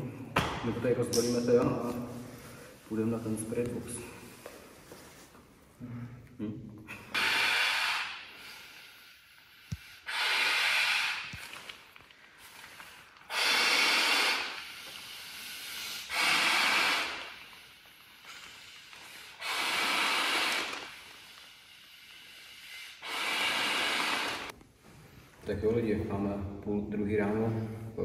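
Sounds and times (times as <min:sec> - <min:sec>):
person breathing heavily: 0:02.2 - 0:03.0, 0:06.9 - 0:24.5.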